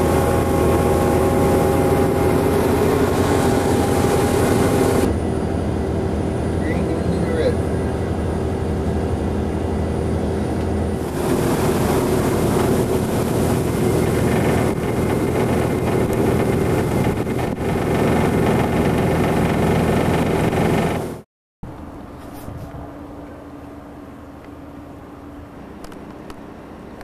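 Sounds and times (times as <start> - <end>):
wind rushing: 0.0 - 6.3, 10.9 - 21.2
boat engine droning: 0.0 - 21.2
choppy water: 11.0 - 21.2.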